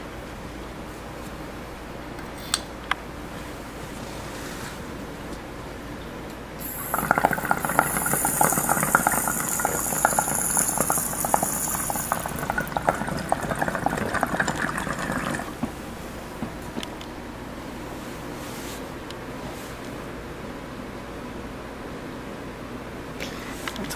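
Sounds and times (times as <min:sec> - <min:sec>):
high hiss: 0:06.6 - 0:12.6
water bubbling in glass pipe: 0:06.6 - 0:15.7.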